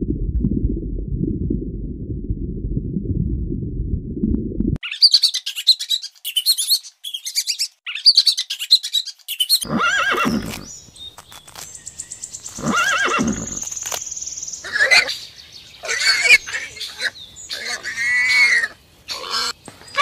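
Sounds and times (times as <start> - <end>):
horse neighing: 9.6 - 10.7, 12.6 - 13.6.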